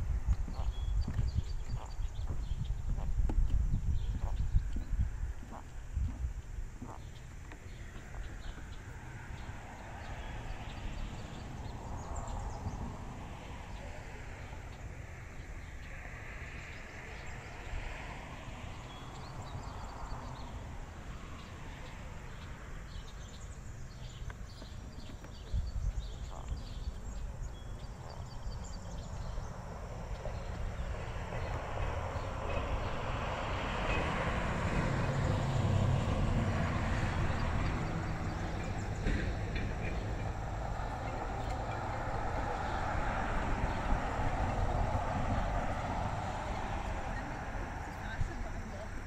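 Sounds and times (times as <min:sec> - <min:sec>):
wind rumble on microphone: 0:00.0 - 0:49.0
footsteps on trail: 0:00.2 - 0:04.9.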